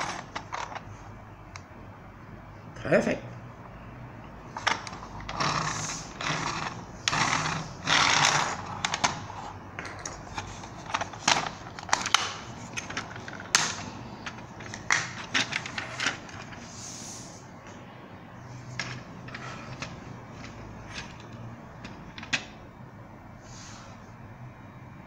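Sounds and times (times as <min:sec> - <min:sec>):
plastic toy rubbing and scraping: 0:00.0 - 0:00.9, 0:04.5 - 0:16.8.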